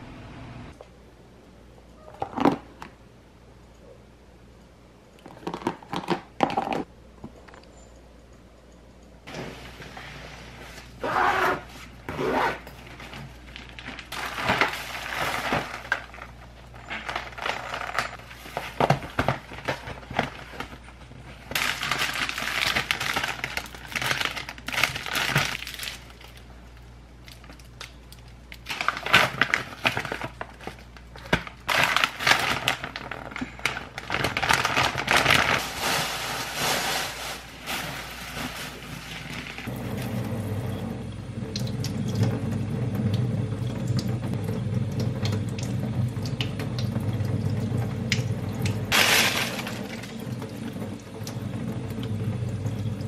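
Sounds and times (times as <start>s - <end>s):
plastic and paper rustling: 12.8s - 26.5s, 28.6s - 39.8s.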